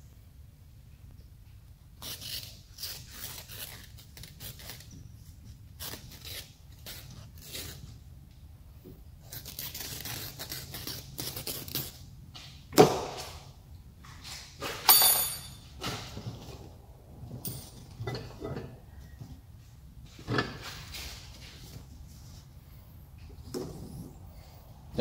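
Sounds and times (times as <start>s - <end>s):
mesh rustling and tearing: 2.0s - 5.0s, 9.2s - 12.1s
ringing metallic clink: 14.9s - 15.7s.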